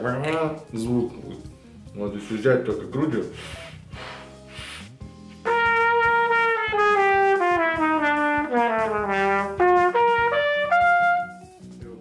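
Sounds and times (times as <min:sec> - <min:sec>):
trumpet playing descending phrase: 0:05.5 - 0:11.5.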